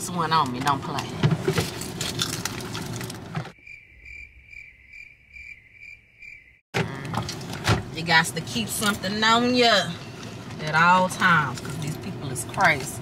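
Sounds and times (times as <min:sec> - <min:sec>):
high pulsing chirp: 0:03.6 - 0:06.6.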